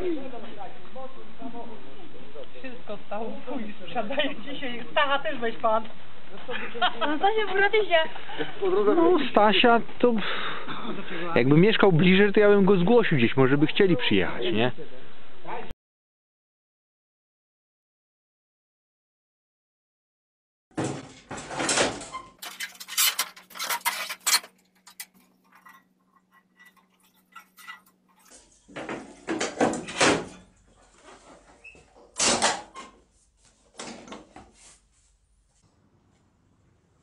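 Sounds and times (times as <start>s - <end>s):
scooter panels clunking and rattling: 20.8s - 25.8s, 28.7s - 30.5s.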